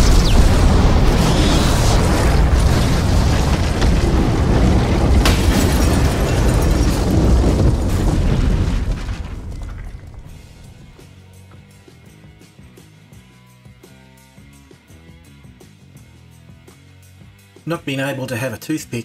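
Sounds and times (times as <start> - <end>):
explosion boom and rumble: 0.0 - 11.0
sharp crack: 0.0 - 11.0.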